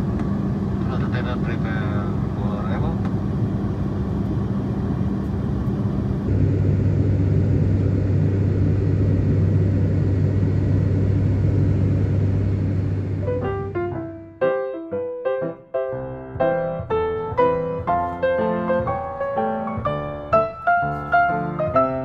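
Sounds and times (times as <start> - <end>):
turboprop engine drone in cabin: 0.0 - 14.2.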